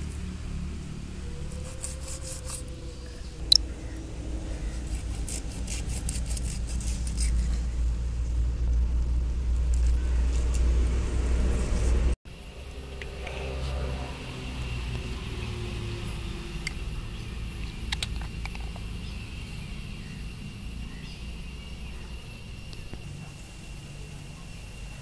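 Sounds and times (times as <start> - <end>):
low rumble: 0.0 - 24.8
knife scraping fish: 1.6 - 2.7, 4.6 - 7.6.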